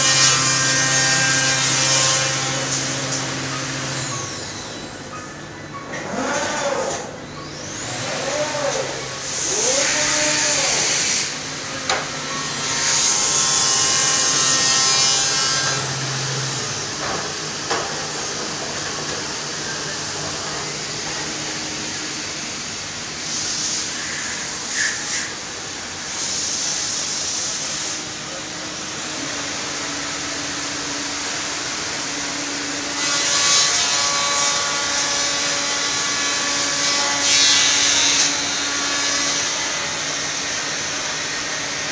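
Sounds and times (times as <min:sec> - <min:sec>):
machine cutting timber: 0:00.0 - 0:04.9, 0:05.9 - 0:25.3
steady machine hum: 0:08.3 - 0:26.1.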